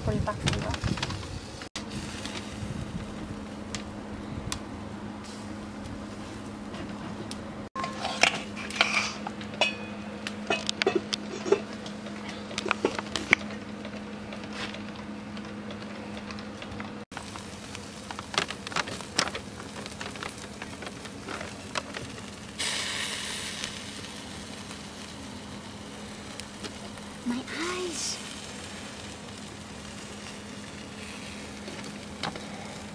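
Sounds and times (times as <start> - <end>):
coals crackling and popping: 0.0 - 32.9
meat sizzling on a grill: 0.1 - 4.1, 17.1 - 32.9.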